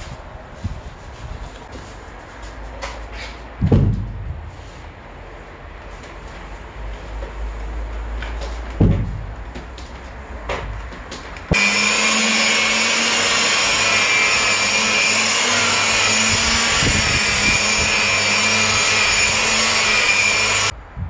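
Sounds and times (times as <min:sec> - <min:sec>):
electric polisher whining: 0:11.5 - 0:20.8.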